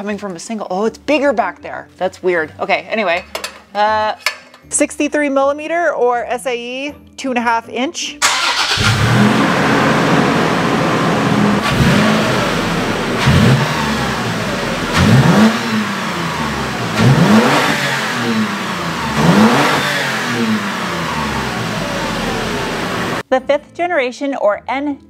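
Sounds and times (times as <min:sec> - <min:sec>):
engine idling and revving: 0:08.2 - 0:23.2.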